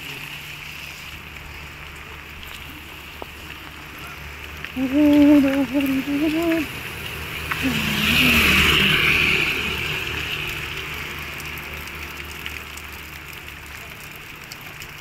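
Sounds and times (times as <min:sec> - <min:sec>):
tyre hiss on wet road: 0:00.0 - 0:14.8
steady rain hiss: 0:00.0 - 0:15.0
motor scooter passing: 0:04.8 - 0:11.4.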